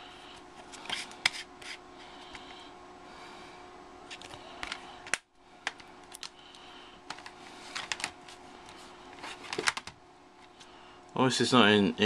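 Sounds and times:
faint steady hum: 0.0s - 12.0s
plastic disc cases clicking: 7.1s - 8.2s, 9.3s - 10.0s.

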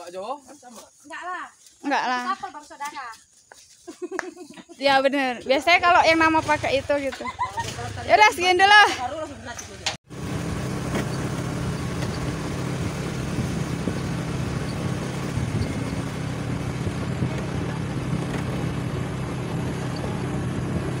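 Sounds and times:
vehicle engine humming: 4.9s - 21.0s
road and wind noise: 5.4s - 21.0s.

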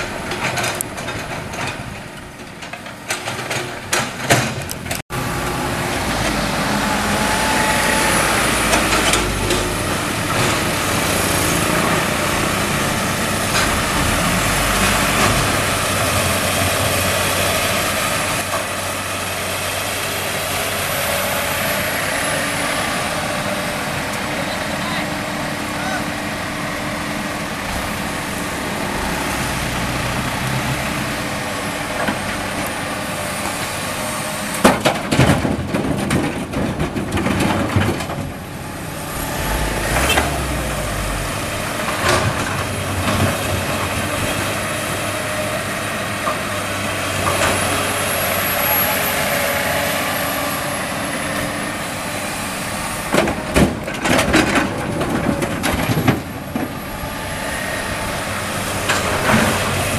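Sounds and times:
excavator diesel engine running: 0.0s - 59.9s
high hydraulic whine: 5.2s - 11.9s, 38.4s - 43.2s
rocks rattling into truck bed: 34.6s - 38.5s, 53.1s - 56.8s.

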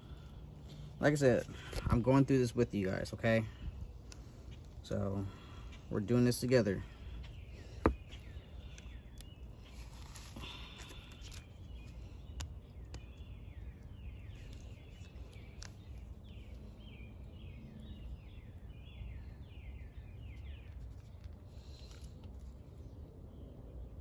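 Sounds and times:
low outdoor rumble: 0.0s - 24.0s
small bird chirping: 2.2s - 24.0s.

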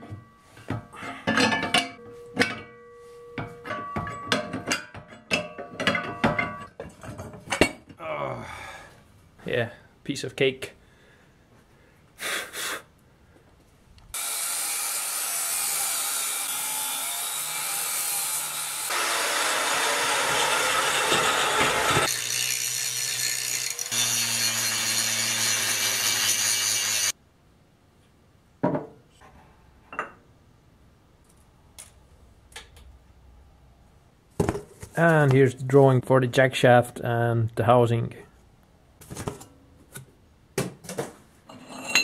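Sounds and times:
light metal knocks and clinks: 0.0s - 7.8s
angle grinder on steel: 14.2s - 27.2s.

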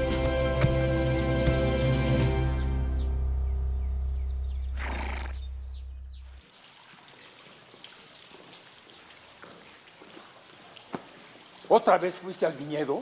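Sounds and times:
music with heavy bass: 0.0s - 4.8s
birds chirping: 0.0s - 10.1s, 11.1s - 13.0s
horse snorting: 4.8s - 5.6s.

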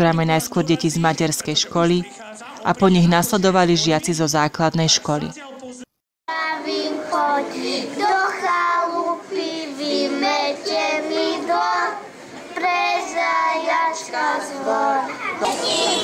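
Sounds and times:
children singing into microphone: 6.3s - 16.0s.

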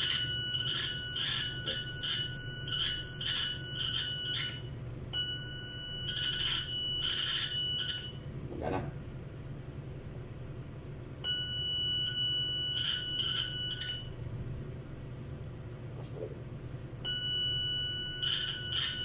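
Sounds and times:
high-pitched activation tone: 0.0s - 4.7s.

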